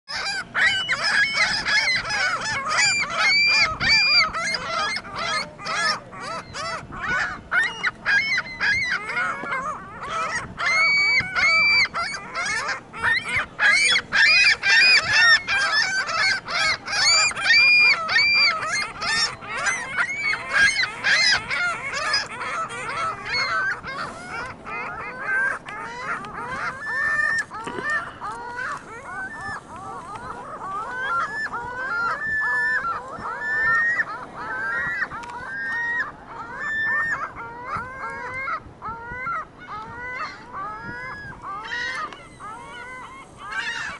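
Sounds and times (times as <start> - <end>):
gulls calling: 0.1 - 43.9.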